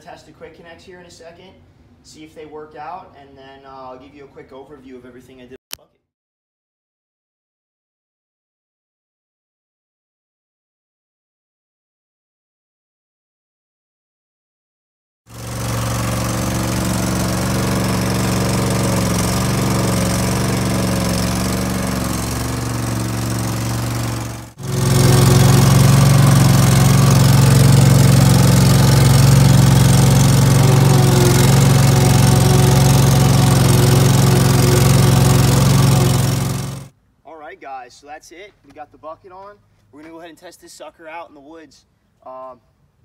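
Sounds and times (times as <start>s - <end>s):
skid steer engine running: 15.3s - 36.9s.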